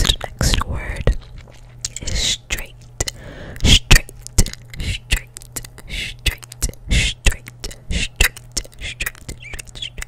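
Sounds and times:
person whispering: 0.0s - 1.2s, 4.7s - 10.0s
gum chewing clicks and smacks: 0.0s - 10.0s.

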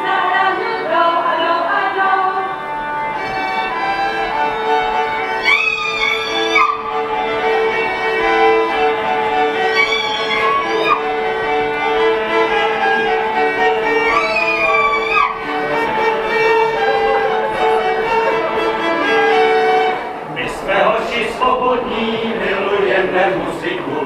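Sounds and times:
fiddle playing dance tune: 0.0s - 20.3s
accordion: 0.0s - 24.0s
held drone note: 2.2s - 20.3s.

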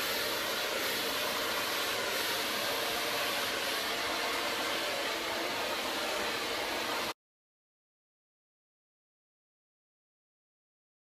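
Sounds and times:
hair dryer blowing steadily: 0.0s - 7.2s.

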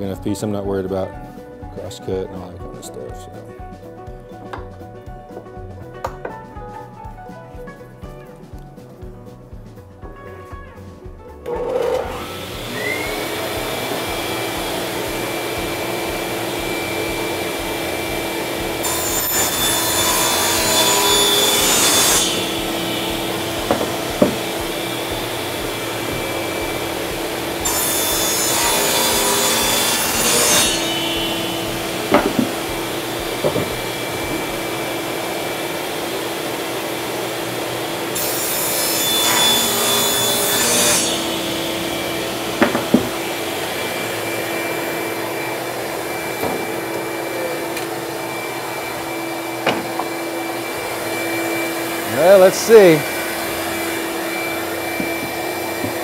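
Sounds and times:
shop vac running: 11.4s - 56.0s
table saw running: 11.4s - 56.0s
saw blade cutting wood: 11.5s - 56.0s
sharp knocks: 21.9s - 25.3s, 30.7s - 34.7s, 42.5s - 43.4s.

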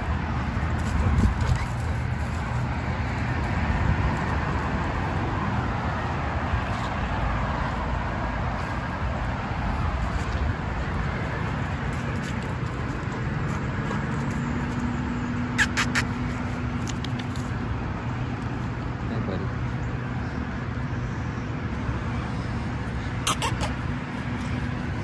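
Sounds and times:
low rushing outdoor noise: 0.0s - 15.4s.

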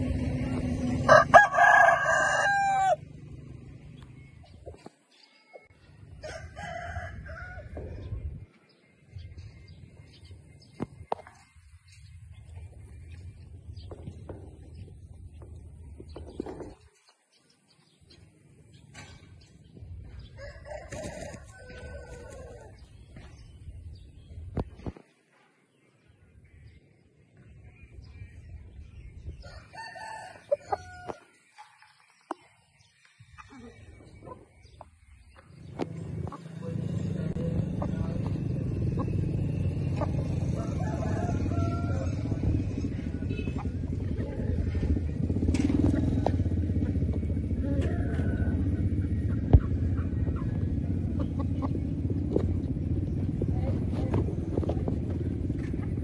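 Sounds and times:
engine running: 0.0s - 4.9s, 33.7s - 56.0s
rooster crowing: 1.1s - 3.0s, 6.2s - 8.0s, 20.4s - 22.7s, 29.4s - 31.3s, 40.3s - 42.4s
low rumble: 33.6s - 56.0s.

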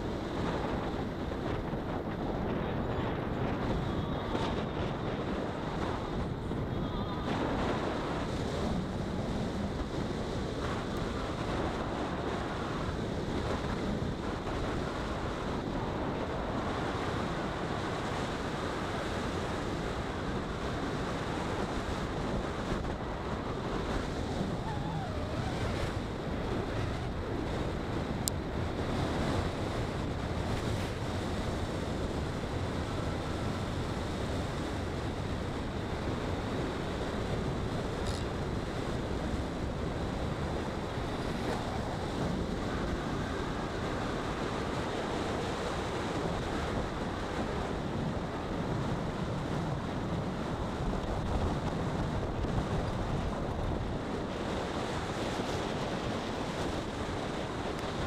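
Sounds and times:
car road and wind noise: 0.0s - 58.0s.

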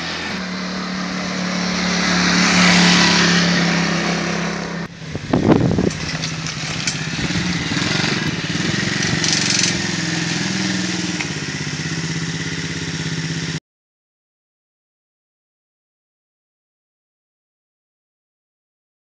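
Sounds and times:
small engine running: 0.0s - 13.6s.

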